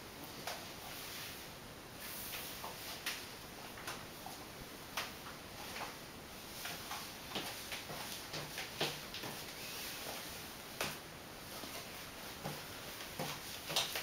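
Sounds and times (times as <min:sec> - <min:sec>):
steady hiss: 0:00.0 - 0:14.0
high heels clicking on tiles: 0:06.7 - 0:11.0, 0:11.6 - 0:14.0.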